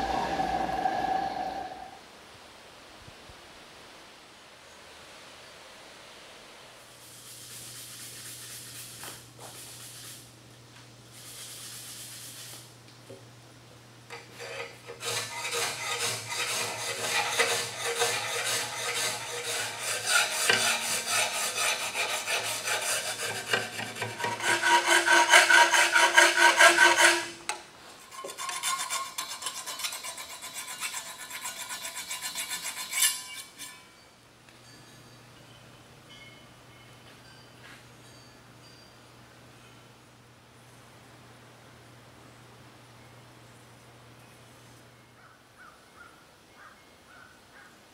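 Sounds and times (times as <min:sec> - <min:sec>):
hand file rasping on steel: 0:14.1 - 0:33.8
metallic ringing tone: 0:33.0 - 0:39.8.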